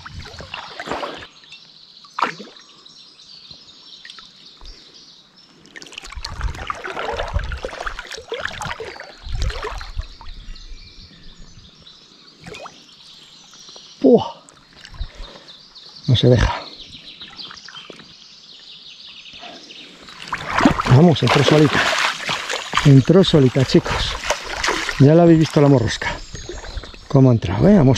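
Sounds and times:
water splashing and trickling: 0.0s - 2.8s, 5.6s - 10.5s, 12.4s - 12.8s, 14.0s - 18.2s, 19.8s - 27.9s.

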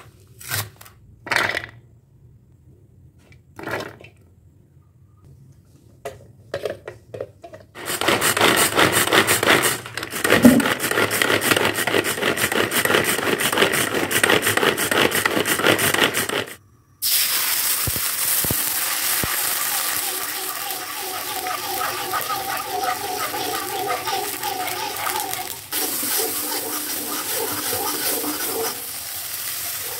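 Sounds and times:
manual food chopper whirring and clattering: 7.7s - 16.6s, 18.0s - 29.9s
food sizzling in hot oil: 17.0s - 29.9s.

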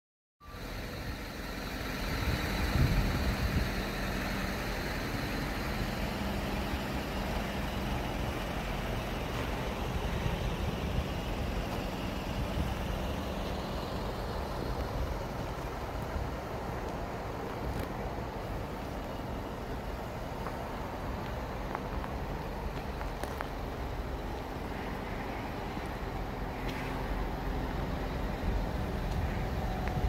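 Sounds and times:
engine idling: 0.4s - 30.0s.

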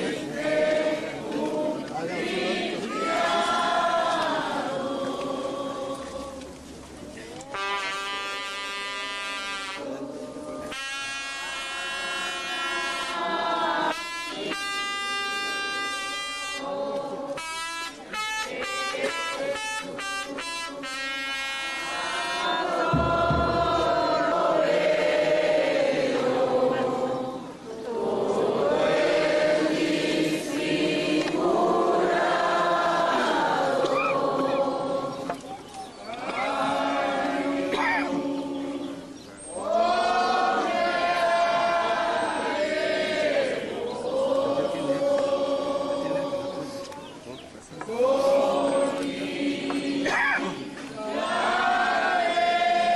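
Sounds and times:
group singing a slow hymn: 0.0s - 52.9s
wind instruments playing slow tune: 7.4s - 16.7s, 17.3s - 27.1s.

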